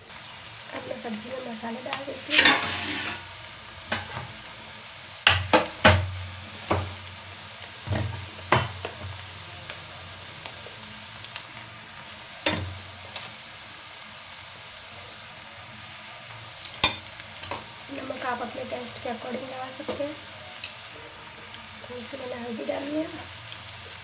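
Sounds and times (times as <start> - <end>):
vegetables sizzling in a pan: 0.0 - 24.0
spoon knocking on metal pan: 5.2 - 6.1, 7.9 - 8.8.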